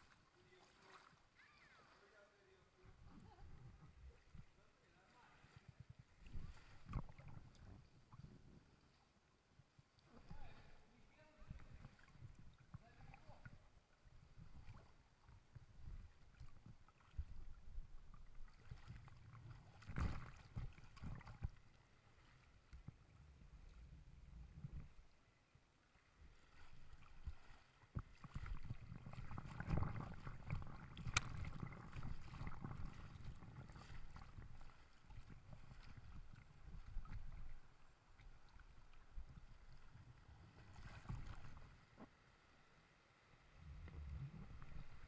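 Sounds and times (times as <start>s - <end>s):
river water splashing: 0.0s - 3.0s, 26.0s - 39.9s
hands paddling water: 0.0s - 8.6s, 14.3s - 23.0s, 26.2s - 42.2s.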